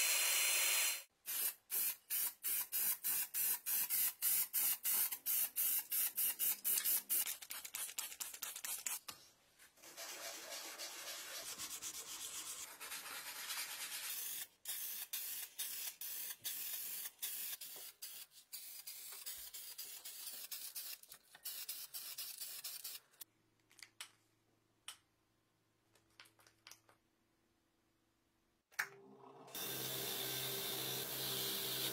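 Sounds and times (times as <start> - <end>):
paint sprayer hissing: 0.0 - 7.2, 14.1 - 23.1.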